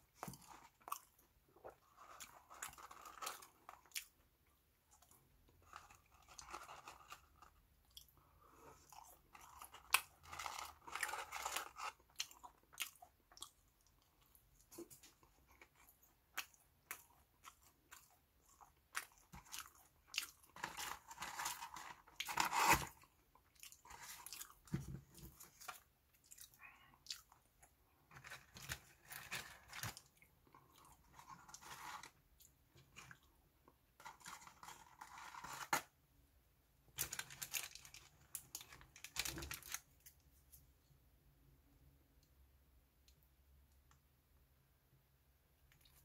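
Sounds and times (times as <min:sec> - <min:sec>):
crunchy chewing: 0:04.9 - 0:33.3
paper wrappers crinkling: 0:37.0 - 0:40.2.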